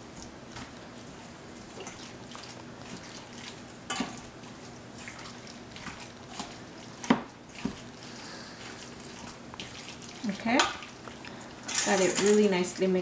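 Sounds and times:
wet squelching of stirred meat: 0.0s - 12.9s.

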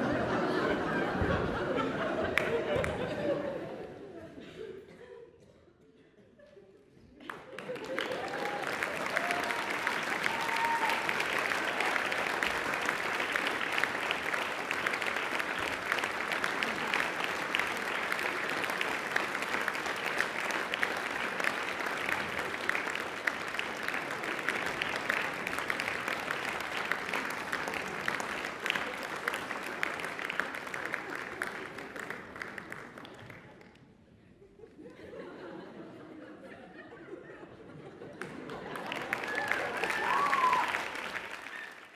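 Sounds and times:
audience applauding: 1.6s - 3.3s, 7.2s - 33.8s, 37.9s - 41.9s.

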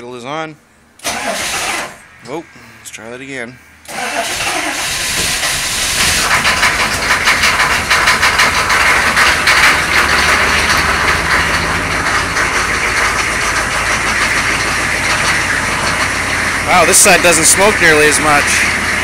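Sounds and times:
diesel engine idling with knock: 3.9s - 19.0s.

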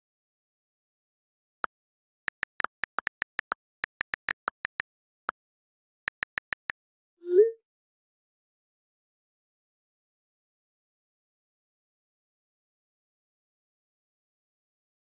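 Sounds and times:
phone keyboard clicks: 2.3s - 4.8s, 6.1s - 6.7s.

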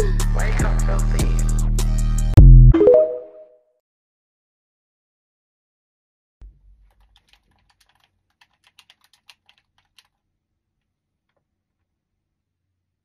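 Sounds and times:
rapid plastic clicks: 6.8s - 10.2s.

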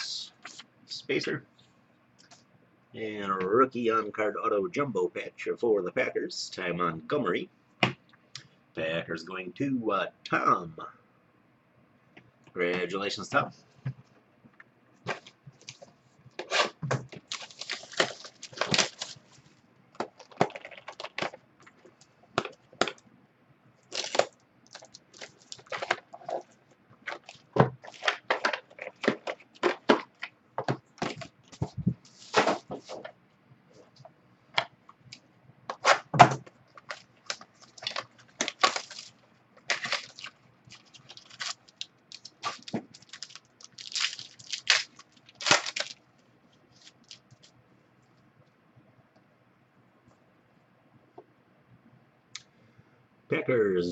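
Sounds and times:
plastic wrapping crinkling and tearing: 16.4s - 23.0s, 23.8s - 30.3s, 36.7s - 46.0s, 46.7s - 47.5s.

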